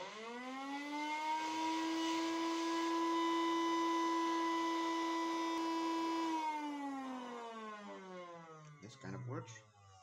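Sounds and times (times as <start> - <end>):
electric motor whine: 1.2 - 7.3.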